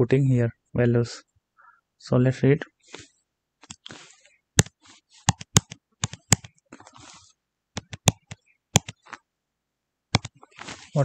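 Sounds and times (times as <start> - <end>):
computer keys clicking: 5.3 - 6.6, 7.8 - 9.2, 10.2 - 10.4
faint rustling: 10.4 - 11.0.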